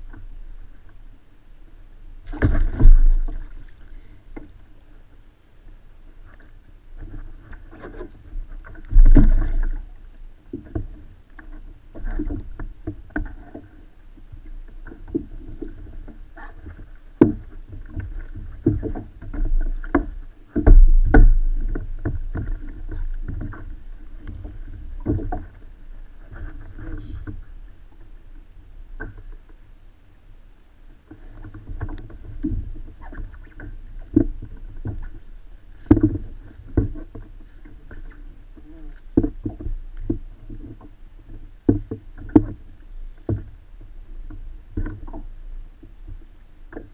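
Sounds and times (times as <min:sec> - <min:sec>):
knocks against kayak hull: 0:02.3 - 0:03.5, 0:08.9 - 0:09.8, 0:17.2 - 0:23.6, 0:35.8 - 0:37.2.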